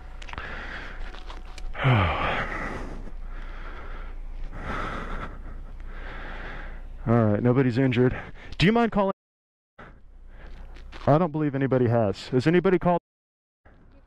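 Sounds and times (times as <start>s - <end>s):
person breathing heavily: 0.2s - 7.1s, 8.1s - 8.6s, 9.8s - 10.8s.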